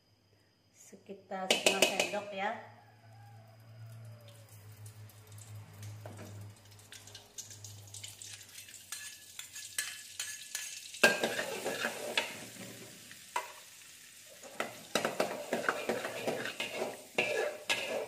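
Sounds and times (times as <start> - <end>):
fat sizzling in hot oil: 3.8 - 18.0
metal spatula scraping a pan: 8.2 - 13.6, 14.4 - 18.0.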